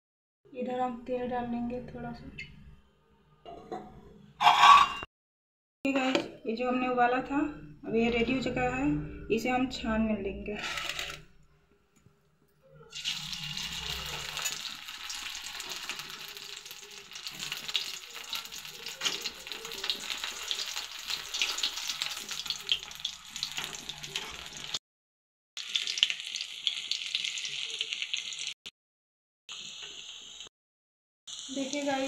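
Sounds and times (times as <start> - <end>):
hot oil sizzling and crackling: 12.9 - 24.8, 25.6 - 28.6, 29.5 - 30.5, 31.3 - 32.0.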